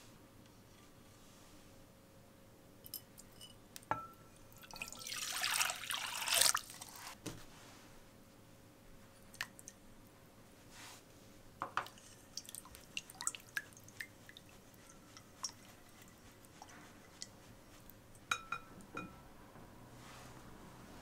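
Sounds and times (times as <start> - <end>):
water splashing in a bowl: 4.6 - 6.9, 11.9 - 16.1.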